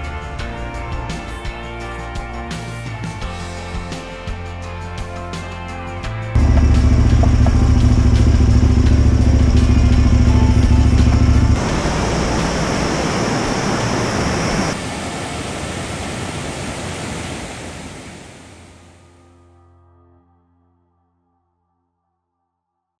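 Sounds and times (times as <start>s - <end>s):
motorcycle engine: 6.4s - 14.8s
wind rumble: 6.4s - 19.0s
river rapids rushing: 11.6s - 18.9s.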